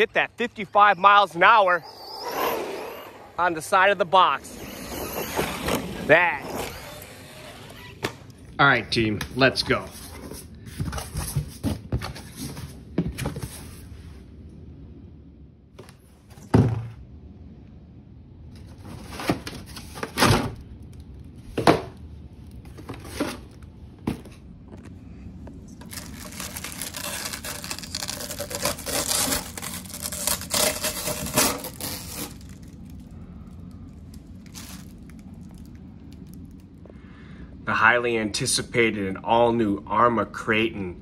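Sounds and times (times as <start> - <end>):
cardboard and plastic rustling: 9.7 - 13.9, 21.4 - 25.0, 25.6 - 33.1, 34.1 - 36.6
plastic bag crinkling: 25.7 - 33.2, 34.1 - 36.6.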